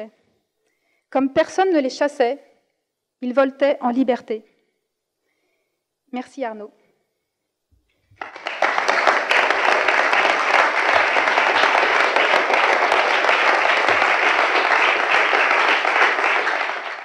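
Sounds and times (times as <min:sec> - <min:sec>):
audience applauding: 0:08.2 - 0:17.0.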